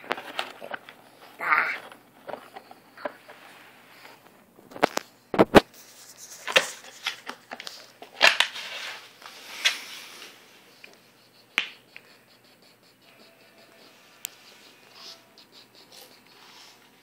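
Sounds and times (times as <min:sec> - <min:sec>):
cardboard box creaking and crackling: 0:00.0 - 0:03.4.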